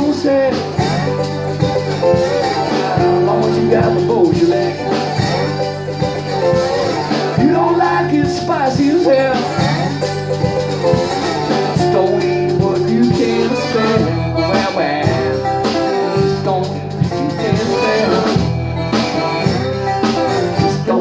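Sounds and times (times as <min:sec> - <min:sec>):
strummed acoustic guitar: 0:00.0 - 0:21.0
piano accordion: 0:09.3 - 0:21.0.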